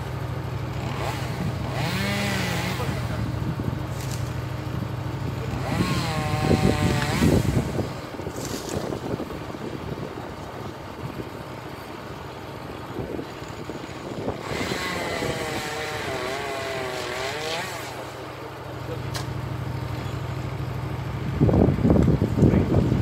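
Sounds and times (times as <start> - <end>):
engine running with wavering pitch: 0.0 - 23.0.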